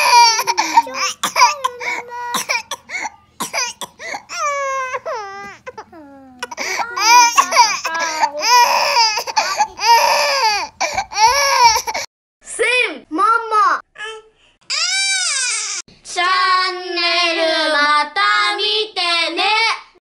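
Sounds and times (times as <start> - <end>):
baby crying: 0.0 - 12.1, 14.7 - 15.8.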